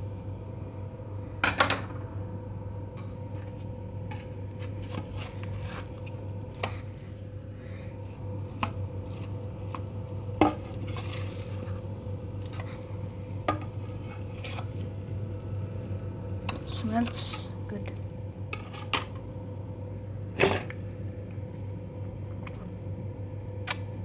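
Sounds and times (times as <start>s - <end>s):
steady low hum: 0.0s - 24.0s
meat frying in hot oil: 8.4s - 17.5s.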